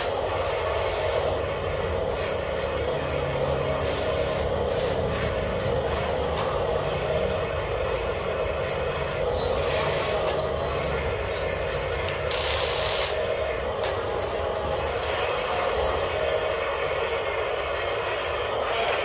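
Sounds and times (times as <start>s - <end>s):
electric motors and gears whirring: 0.0s - 19.0s.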